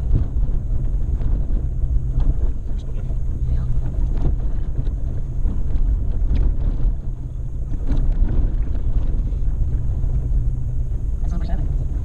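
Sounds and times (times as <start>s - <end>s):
vehicle engine driving drone: 0.0s - 12.0s
wind buffeting microphone: 0.0s - 12.0s.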